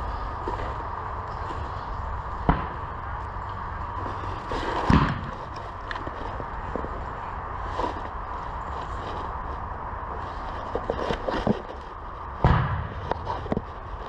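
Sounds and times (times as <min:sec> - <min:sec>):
airsoft gun crack: 0:04.8 - 0:05.4.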